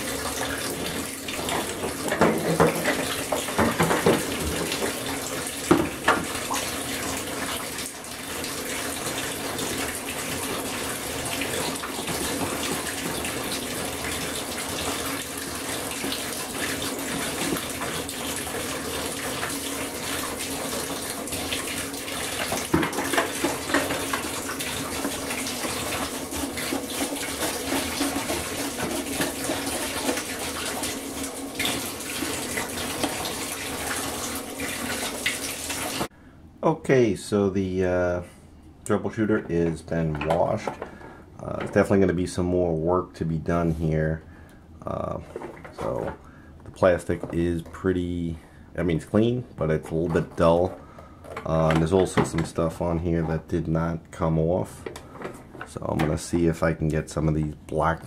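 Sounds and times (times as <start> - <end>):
water running into bathtub: 0.0 - 36.1
toothbrush scrubbing plastic: 22.4 - 30.9.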